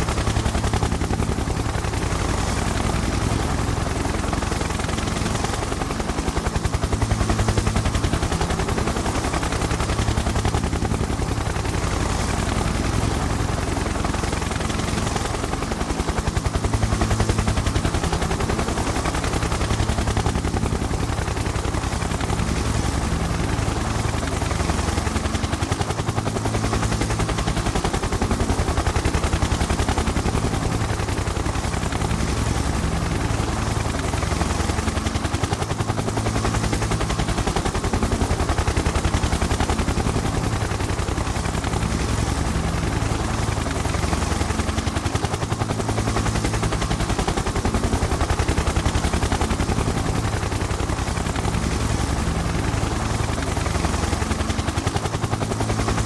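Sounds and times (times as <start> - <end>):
helicopter engine hum: 0.0 - 56.0
helicopter rotor chop: 0.0 - 56.0.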